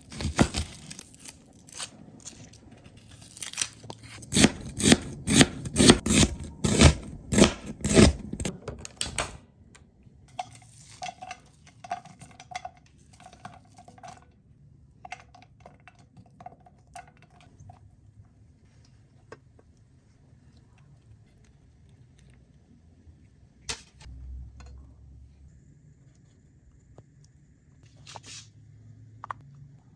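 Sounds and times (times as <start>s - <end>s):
knife chopping onion on board: 4.2s - 8.5s.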